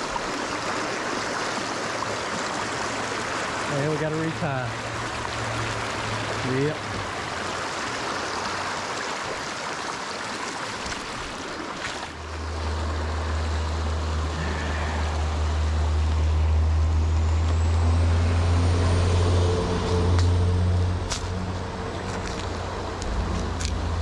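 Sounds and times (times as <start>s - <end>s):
creek water rushing over rocks: 0.0s - 17.5s, 21.0s - 24.0s
vehicle engine rumble: 12.1s - 24.0s.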